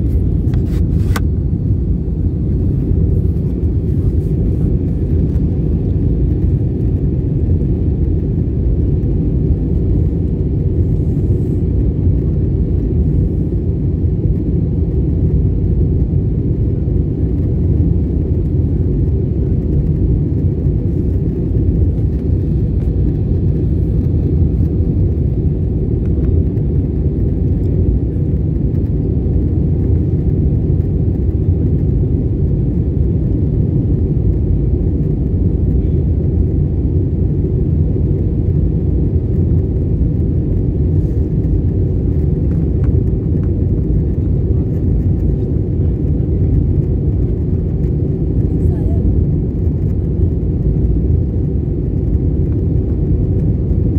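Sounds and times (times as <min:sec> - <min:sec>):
airliner cabin rumble: 0:00.0 - 0:53.9.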